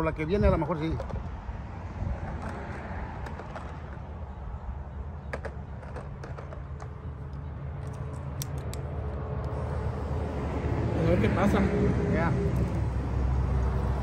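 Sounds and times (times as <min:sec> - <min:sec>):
steady low rumble: 0:06.9 - 0:14.0.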